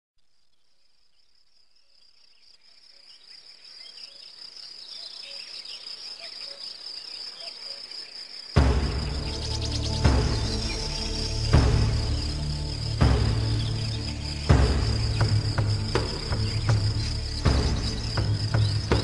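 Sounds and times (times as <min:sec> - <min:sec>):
crickets trilling: 0:00.2 - 0:19.0
faint chirps: 0:00.2 - 0:19.0
music with deep low note: 0:08.6 - 0:19.0.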